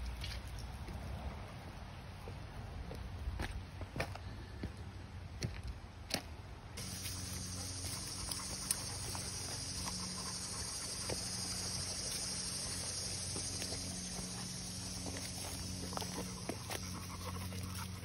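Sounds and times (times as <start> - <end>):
light steps on dirt trail: 2.2 - 18.0
steady high hiss: 6.8 - 17.5
footsteps on loose stones: 6.8 - 18.0.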